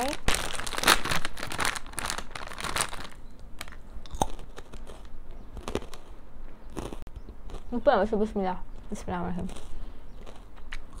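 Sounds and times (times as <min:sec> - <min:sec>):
plastic snack bag crinkling: 0:00.0 - 0:06.1
crunching and chewing snack: 0:00.0 - 0:07.7, 0:09.4 - 0:11.0.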